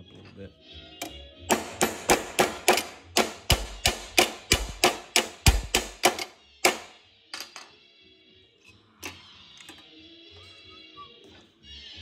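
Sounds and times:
hammer striking sheet metal: 1.5 - 6.9.

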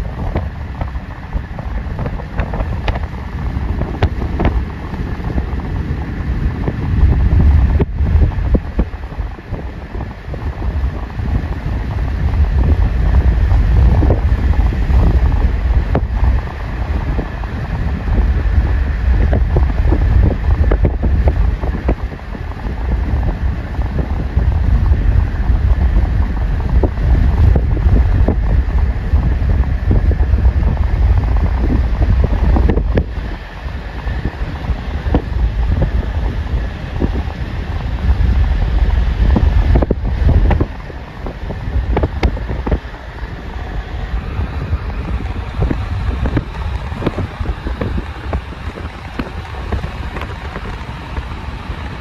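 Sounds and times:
moving car rumble: 0.0 - 52.0
wind buffeting microphone: 0.0 - 52.0.

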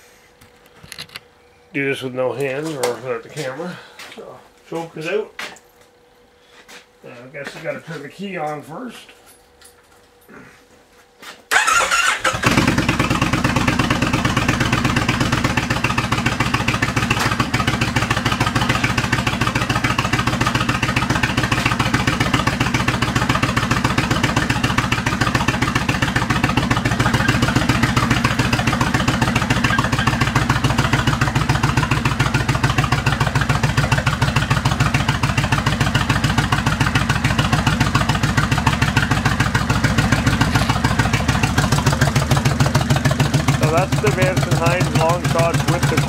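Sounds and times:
motorcycle engine cranking: 11.5 - 46.0
motorcycle engine idling: 11.5 - 46.0.

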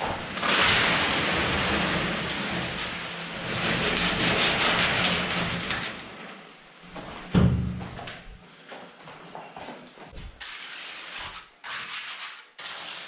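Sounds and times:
wet concrete pouring from wheelbarrow: 0.0 - 6.8, 10.4 - 13.0.

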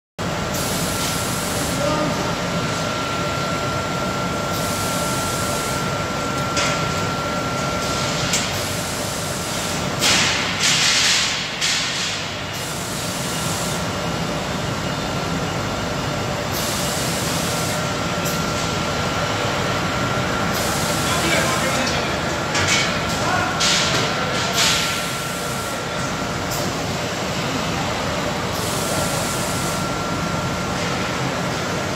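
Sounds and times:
machinery noise with thin whine: 0.2 - 31.9.

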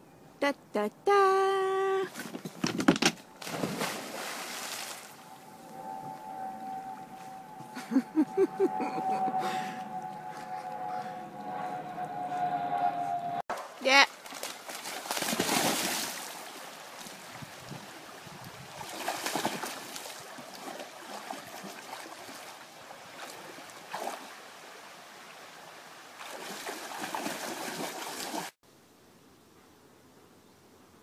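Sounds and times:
dog splashing in water: 3.4 - 5.1, 13.6 - 17.2, 18.8 - 22.5, 26.2 - 28.5.

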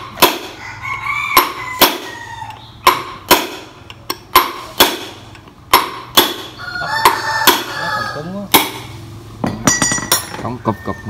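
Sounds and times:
hammer strikes on metal tool: 0.0 - 0.6, 1.3 - 2.2, 2.8 - 7.8, 8.5 - 10.5.

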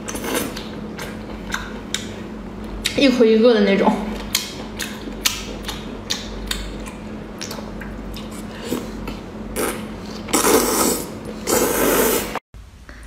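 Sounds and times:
steady low hum: 0.0 - 13.0
close chewing and mouth clicks: 4.2 - 11.6.

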